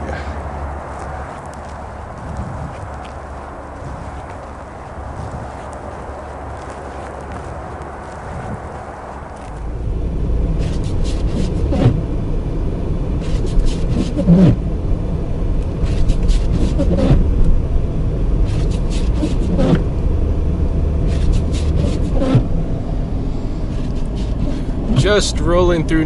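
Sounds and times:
engine and road rumble: 0:00.0 - 0:26.0
windshield wipers squeaking: 0:00.9 - 0:09.6, 0:10.5 - 0:12.0, 0:13.1 - 0:14.6, 0:15.7 - 0:17.5, 0:18.3 - 0:19.9, 0:21.0 - 0:22.9, 0:23.5 - 0:25.8.

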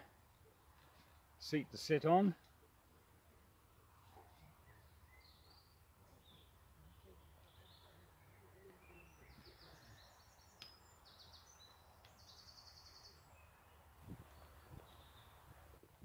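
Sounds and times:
faint songbird chirps: 0:04.0 - 0:15.8.

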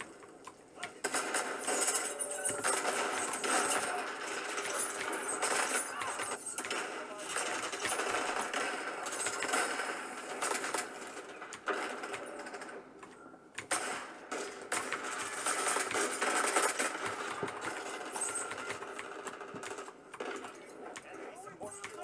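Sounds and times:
video game gunfire: 0:00.0 - 0:22.0.

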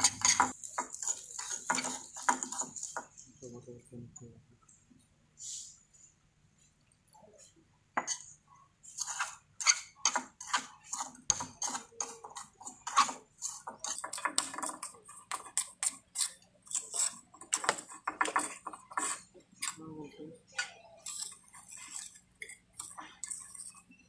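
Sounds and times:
spatula scraping porcelain dish: 0:00.0 - 0:03.2, 0:08.0 - 0:19.8, 0:20.6 - 0:24.0.

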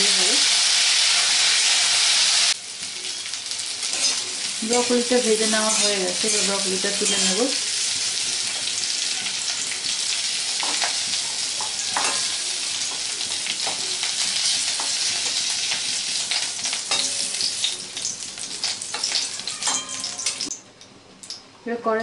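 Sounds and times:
vegetables sizzling in oil: 0:00.0 - 0:20.6
metal spatula scraping a pan: 0:03.9 - 0:07.5.

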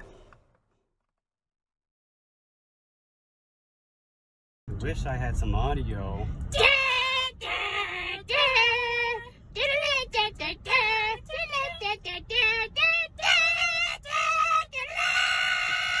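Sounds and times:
high voice singing with vibrato: 0:06.5 - 0:16.0.

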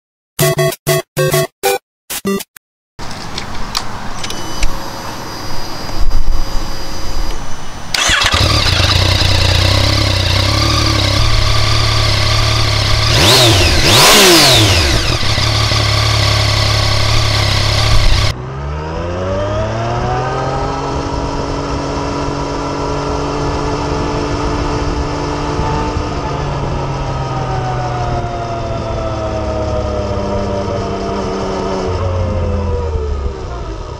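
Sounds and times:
motorcycle engine starting: 0:07.9 - 0:23.5
motorcycle engine revving: 0:07.9 - 0:27.5.

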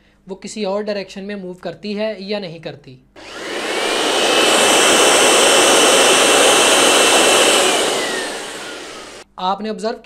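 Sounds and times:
electric blower motor whine: 0:03.2 - 0:09.2
rush of air: 0:03.2 - 0:09.2.

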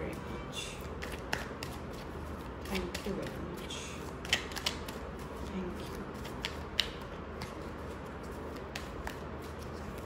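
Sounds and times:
steady low hum: 0:00.0 - 0:10.0
cards clicking: 0:04.2 - 0:05.0.

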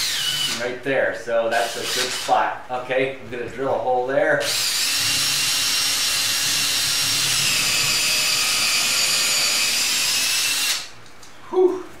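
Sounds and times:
electric drill whining: 0:00.0 - 0:00.6, 0:04.5 - 0:10.9.

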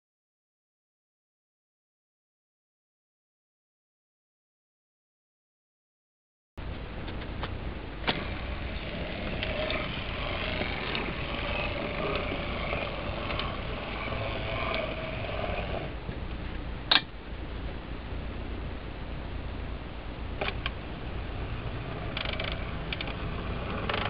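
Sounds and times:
steady low hum: 0:06.6 - 0:24.0
model train motor whirring: 0:08.0 - 0:16.0, 0:20.4 - 0:24.0
sharp click: 0:16.9 - 0:17.1.

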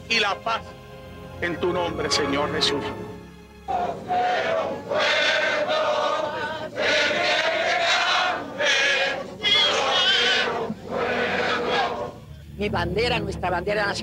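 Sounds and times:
crowd singing in unison: 0:03.6 - 0:12.3.

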